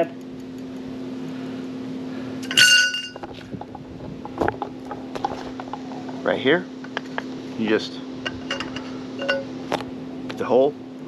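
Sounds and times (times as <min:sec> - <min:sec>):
steel tube clinking and ringing: 0:02.4 - 0:03.2, 0:08.3 - 0:09.5.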